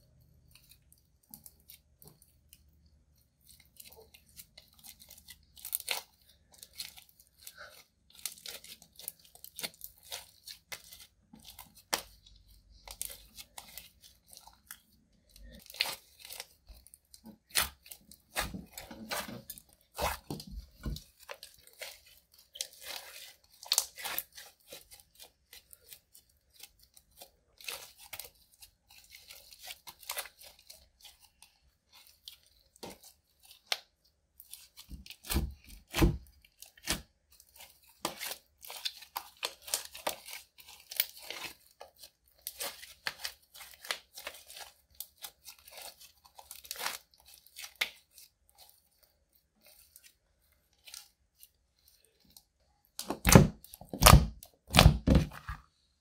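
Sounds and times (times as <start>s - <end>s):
slime squelches: 0.0s - 56.0s
slime crackling and popping: 3.4s - 31.1s, 52.9s - 55.2s.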